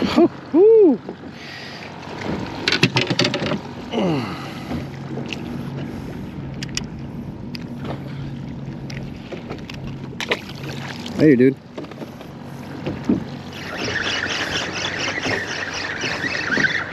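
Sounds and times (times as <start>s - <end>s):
steady low hum: 0.0s - 16.9s
fishing gear clicking and knocking: 2.5s - 3.7s, 6.5s - 7.7s, 11.7s - 13.3s.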